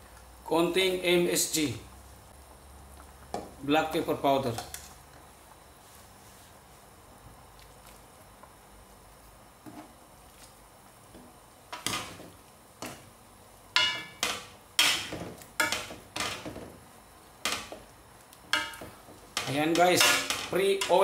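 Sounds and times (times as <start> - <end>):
ladle stirring soup in wok: 13.8 - 16.8.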